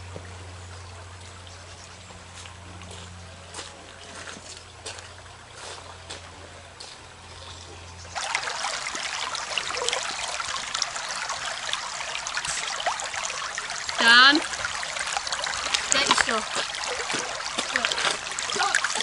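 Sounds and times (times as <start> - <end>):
stream trickling over stones: 0.0 - 19.0.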